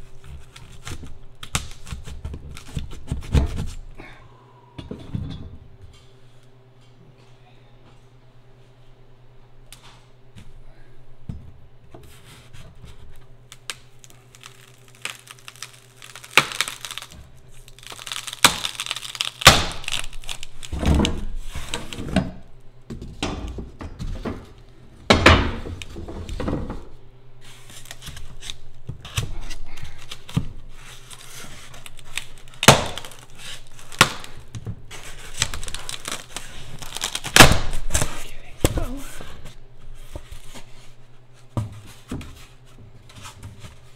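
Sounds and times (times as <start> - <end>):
foam cracking: 13.6 - 22.0, 31.1 - 38.2.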